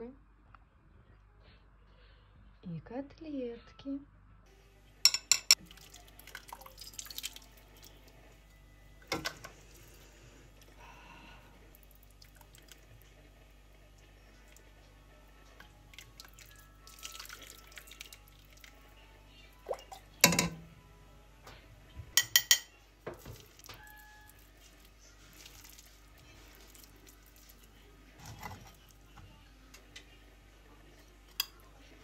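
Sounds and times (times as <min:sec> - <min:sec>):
enamelware clanking: 0:05.1 - 0:05.6, 0:20.2 - 0:20.6.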